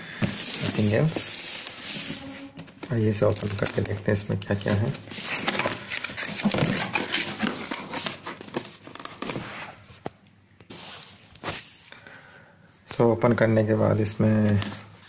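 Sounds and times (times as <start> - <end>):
contents rustling: 0.2 - 11.7.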